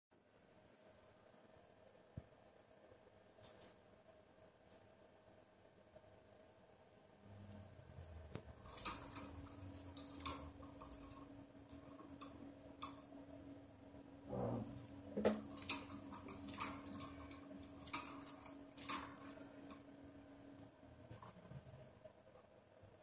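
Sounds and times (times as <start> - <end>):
bird moving in wire cage: 8.0 - 13.6, 14.5 - 21.7.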